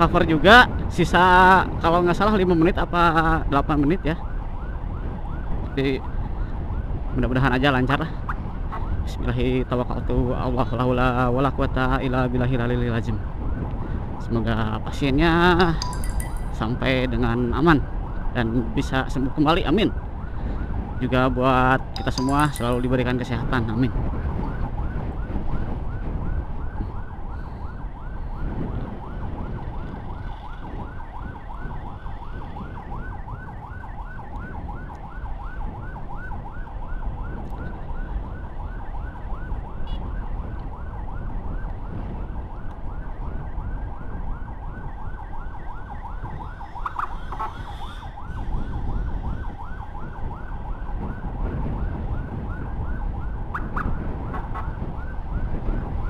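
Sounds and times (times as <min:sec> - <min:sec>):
road and wind noise: 0:00.0 - 0:56.0
electronic siren yelping: 0:44.7 - 0:51.0, 0:52.5 - 0:55.4.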